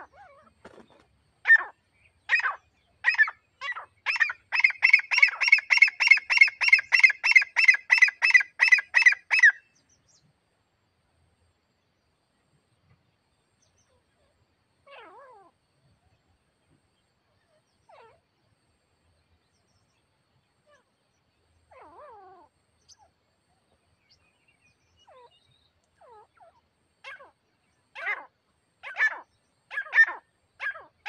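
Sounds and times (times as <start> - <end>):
francolin calling harsh repeated notes: 2.3 - 9.6.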